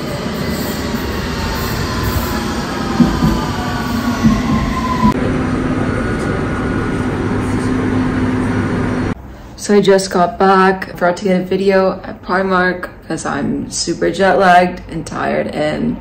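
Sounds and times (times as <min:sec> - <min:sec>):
train motor whine: 0:00.0 - 0:09.2
train wheels rumbling on track: 0:00.0 - 0:09.2.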